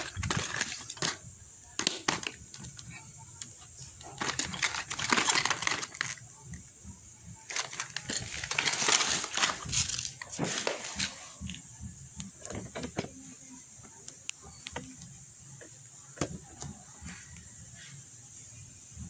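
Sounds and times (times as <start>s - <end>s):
plastic packaging crinkling: 0.0s - 1.2s, 4.0s - 6.2s, 7.5s - 11.2s.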